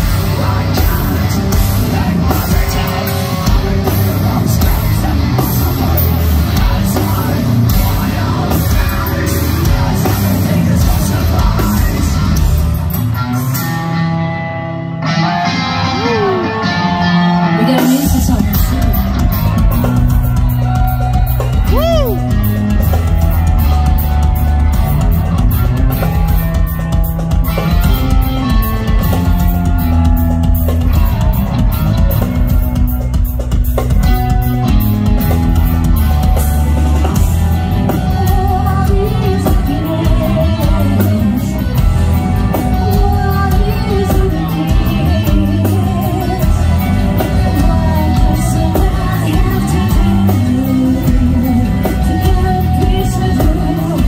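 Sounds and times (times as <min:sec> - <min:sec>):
metal band playing live: 0:00.0 - 0:54.0
woman singing: 0:17.3 - 0:19.3, 0:37.8 - 0:54.0.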